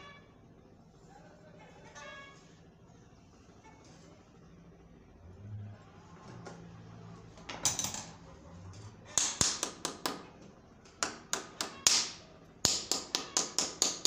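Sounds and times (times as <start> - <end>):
hammer tapping on metal: 10.9 - 14.0.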